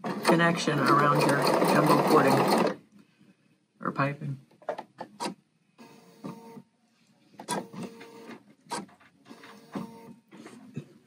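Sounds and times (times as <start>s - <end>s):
sewing machine stitching: 0.0s - 2.8s.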